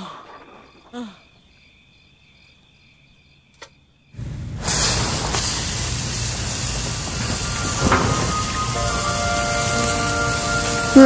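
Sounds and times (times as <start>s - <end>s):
faint cricket chirping: 0.0s - 4.2s
loud steady hiss: 4.2s - 11.0s.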